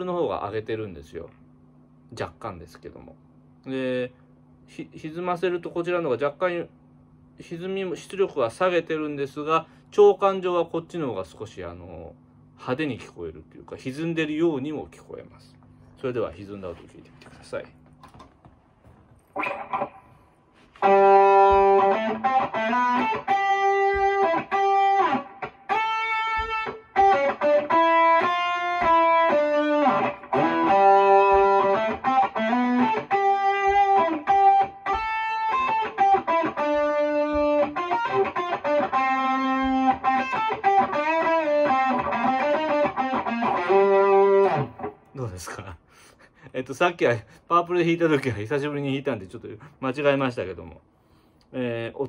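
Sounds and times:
distorted electric guitar lead: 19.4 - 45.2.

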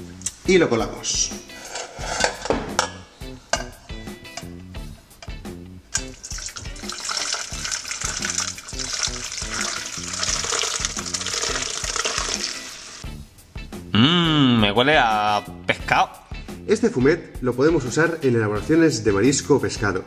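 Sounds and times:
metal pots knocking: 1.6 - 4.6, 5.2 - 12.7
liquid pouring through strainer: 5.9 - 13.0.

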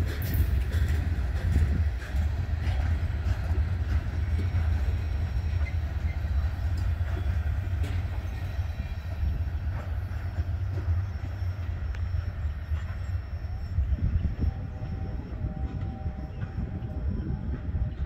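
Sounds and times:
train wheels rumbling on rails: 0.0 - 18.0.

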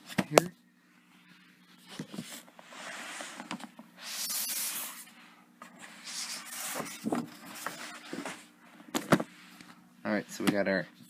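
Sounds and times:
cardboard box scraping: 5.8 - 8.5.

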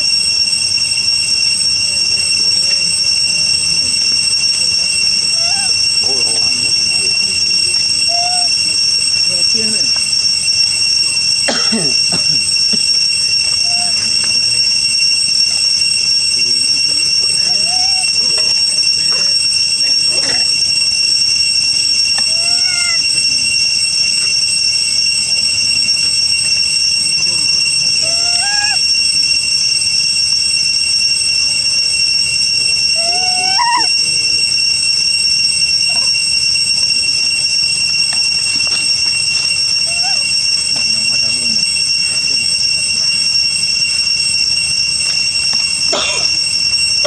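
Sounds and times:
high-pitched insect chorus: 0.0 - 47.0
high-pitched whine: 0.0 - 47.0
faint voice-like calls: 5.3 - 10.0, 22.3 - 23.1, 28.0 - 28.9, 33.0 - 34.0.

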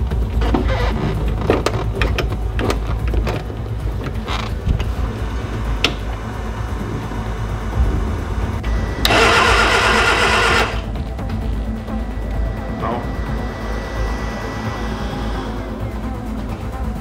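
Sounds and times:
car engine cranking on starter: 5.6 - 11.0.

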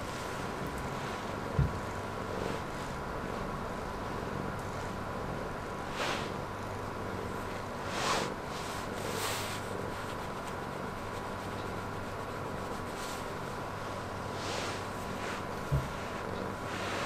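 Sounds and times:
cat purring: 0.0 - 17.0
hand stroking cat fur: 5.8 - 6.4, 7.3 - 17.0.

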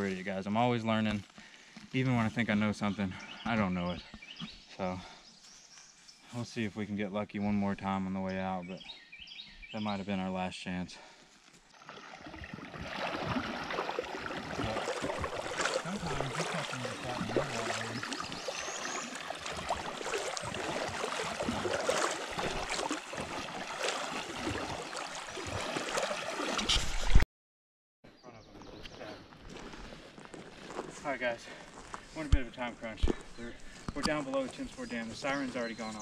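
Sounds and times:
legs wading through water: 11.5 - 27.1, 29.4 - 36.0.

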